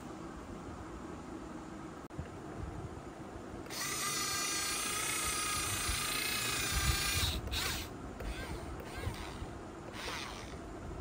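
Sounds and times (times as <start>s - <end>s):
electric gear motors whining: 3.7s - 10.6s.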